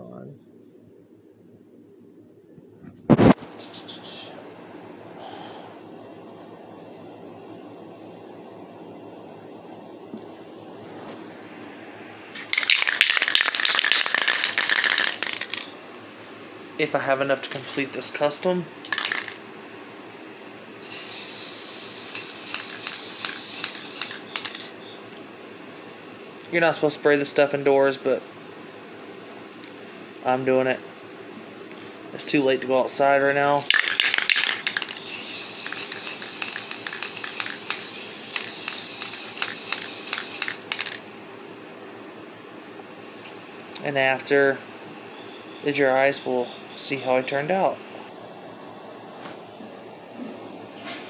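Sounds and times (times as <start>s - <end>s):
aerosol can spraying hiss: 20.8s - 24.6s, 34.9s - 40.9s.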